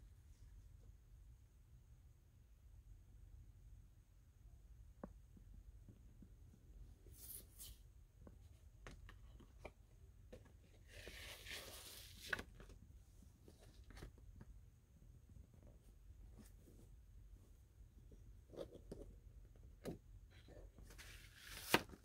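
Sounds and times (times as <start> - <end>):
paper rustling: 10.8 - 12.8, 20.8 - 22.0.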